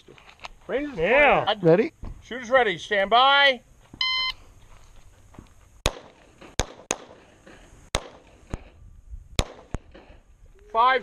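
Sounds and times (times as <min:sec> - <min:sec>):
pistol shots: 0:05.8 - 0:07.3, 0:07.9 - 0:08.6, 0:09.4 - 0:10.1.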